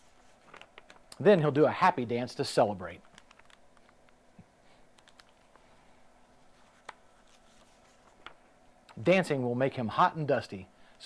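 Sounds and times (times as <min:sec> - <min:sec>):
paper pages rustling: 0:00.0 - 0:01.2, 0:02.9 - 0:04.0, 0:04.9 - 0:08.4.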